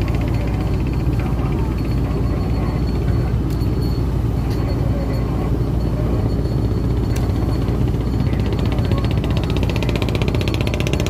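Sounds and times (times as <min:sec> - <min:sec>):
boat engine rumbling: 0:00.0 - 0:11.0.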